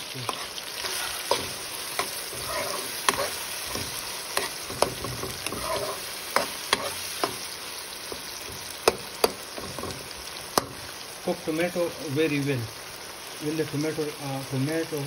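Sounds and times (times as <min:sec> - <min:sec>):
vegetables sizzling in oil: 0:00.0 - 0:15.0
metal spoon clicking on pan: 0:08.1 - 0:10.0.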